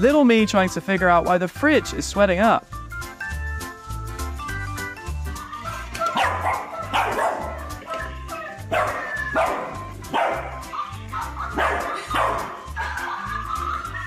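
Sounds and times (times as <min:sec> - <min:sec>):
background music with steady beat: 0:00.0 - 0:14.0
puppy barking: 0:05.6 - 0:14.0.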